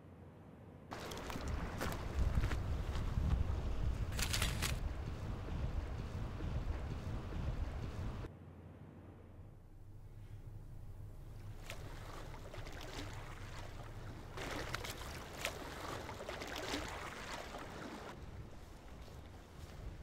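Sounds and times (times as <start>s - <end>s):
water lapping and splashing: 0.9s - 8.3s, 10.3s - 20.0s
steady low rumble: 0.9s - 15.3s.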